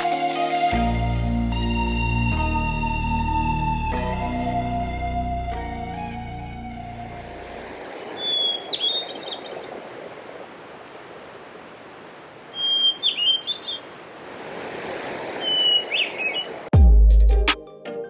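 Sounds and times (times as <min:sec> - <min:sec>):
songbird singing: 0:07.8 - 0:09.8, 0:12.0 - 0:14.0, 0:15.4 - 0:16.7.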